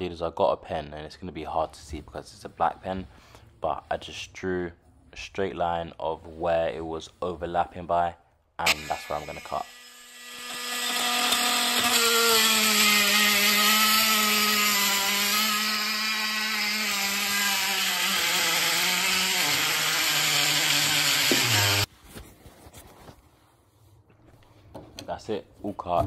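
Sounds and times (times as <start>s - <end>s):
oscillating tool buzzing: 8.6s - 21.9s
rasping hiss of cutting: 8.7s - 21.9s.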